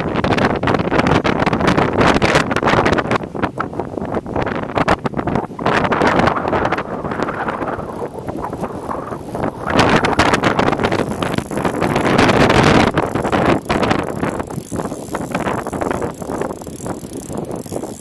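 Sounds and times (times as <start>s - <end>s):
wind buffeting microphone: 0.0s - 18.0s
fishing reel clicking: 6.6s - 18.0s.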